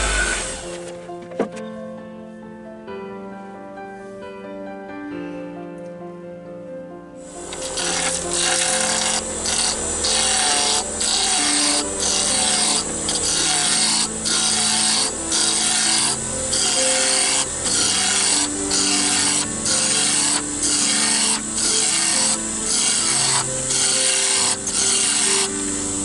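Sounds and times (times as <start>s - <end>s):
lathe tool cutting wood: 0.0s - 0.9s, 7.3s - 26.0s.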